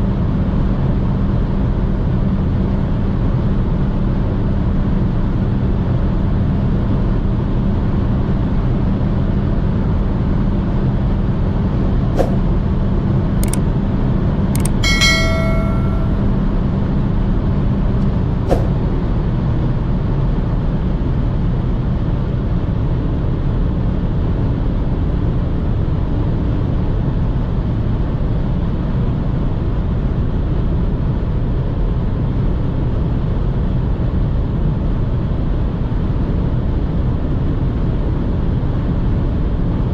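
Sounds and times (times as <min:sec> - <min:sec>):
sharp clicks: 0:14.6 - 0:16.2
short ringing tone: 0:14.6 - 0:16.4.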